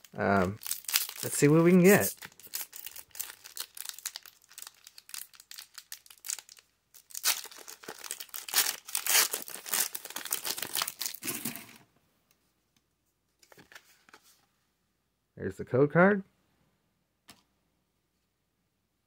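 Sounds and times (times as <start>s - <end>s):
foil wrapper crinkling and tearing: 0.0s - 11.8s.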